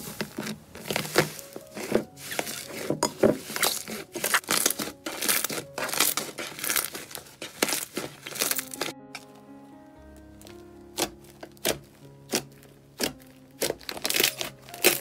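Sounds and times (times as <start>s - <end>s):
slime squeezed by hand: 0.0s - 8.9s
crackles and pops: 3.0s - 9.3s, 10.4s - 15.0s.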